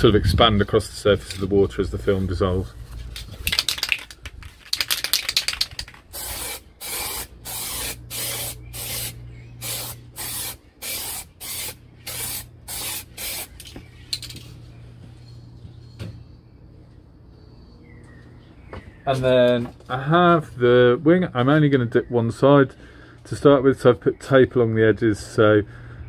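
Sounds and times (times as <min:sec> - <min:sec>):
aerosol can spraying: 0:04.9 - 0:13.5.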